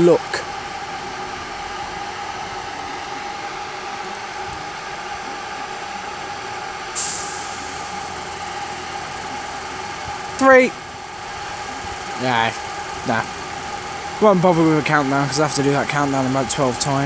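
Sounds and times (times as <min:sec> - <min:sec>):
train equipment humming: 0:00.0 - 0:17.0
air brake hiss: 0:07.0 - 0:08.0.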